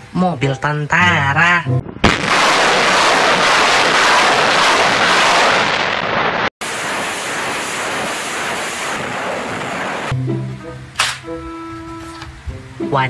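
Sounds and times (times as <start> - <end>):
rocket launcher salvos roaring: 2.0 - 10.1.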